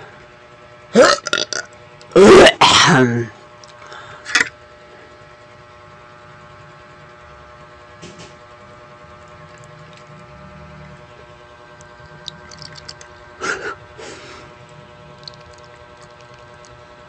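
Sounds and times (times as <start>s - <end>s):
steady low hum: 0.0s - 17.0s
person sneeze-like outburst: 2.2s - 3.2s.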